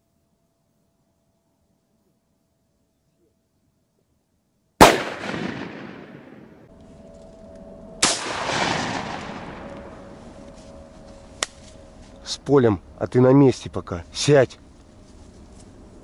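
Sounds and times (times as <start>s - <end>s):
shotgun shots with echo: 4.8s - 6.6s, 8.0s - 9.7s.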